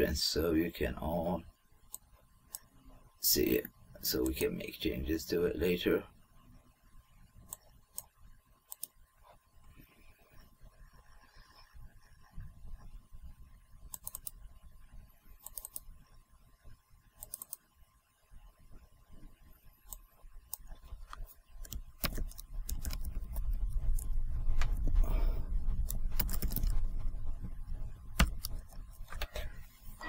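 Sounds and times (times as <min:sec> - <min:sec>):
computer mouse clicks: 0:01.9 - 0:02.7, 0:07.5 - 0:08.1, 0:08.7 - 0:09.0, 0:13.8 - 0:14.4, 0:15.4 - 0:15.9, 0:17.2 - 0:17.7, 0:19.8 - 0:24.9, 0:25.7 - 0:26.8, 0:28.2 - 0:29.5
keyboard typing: 0:08.7 - 0:09.0, 0:13.9 - 0:14.4, 0:15.4 - 0:15.9, 0:17.2 - 0:17.6, 0:19.9 - 0:27.0, 0:28.1 - 0:29.5
low rumble: 0:23.4 - 0:28.2.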